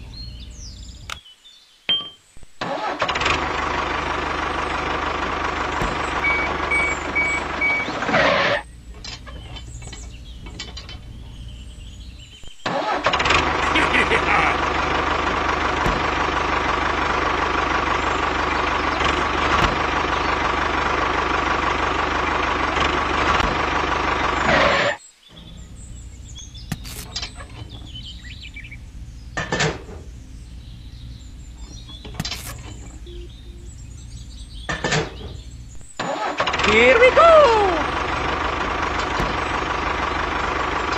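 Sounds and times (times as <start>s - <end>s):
engine running with high whine: 0.0s - 1.2s, 2.4s - 40.9s
faint bird chirps: 8.6s - 12.7s, 25.0s - 36.0s
sharp clicks: 26.7s - 27.3s, 31.9s - 33.0s.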